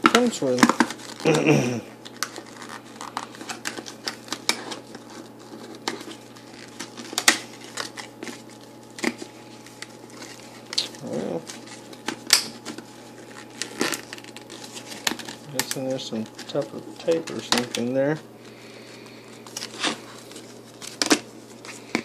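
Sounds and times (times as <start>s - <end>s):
plastic blister pack crackling: 0.0s - 22.0s.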